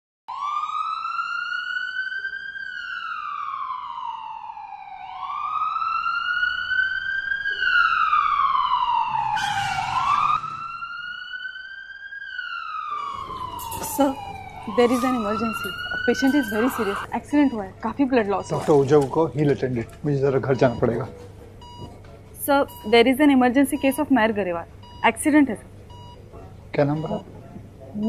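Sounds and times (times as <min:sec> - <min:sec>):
ambulance siren wailing: 0:00.3 - 0:26.2.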